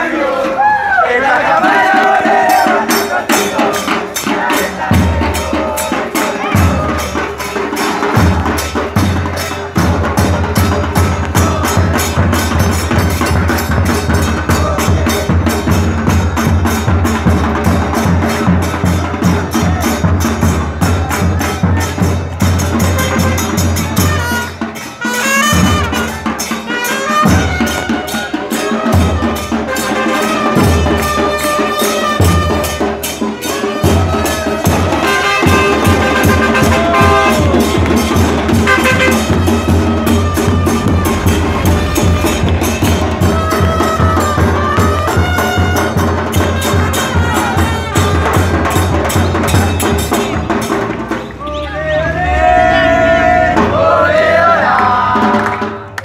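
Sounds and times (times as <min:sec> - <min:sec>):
street band playing: 0:00.0 - 0:56.0
bass drum beats: 0:01.4 - 0:24.8, 0:33.7 - 0:51.6
brass horns playing a tune: 0:22.8 - 0:49.1.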